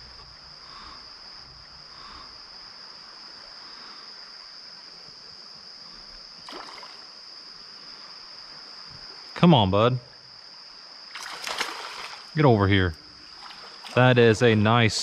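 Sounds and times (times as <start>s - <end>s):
faint water lapping: 0.0s - 9.2s, 11.0s - 15.0s
high-pitched insect trill: 0.0s - 15.0s
fish splashing at surface: 11.2s - 12.3s.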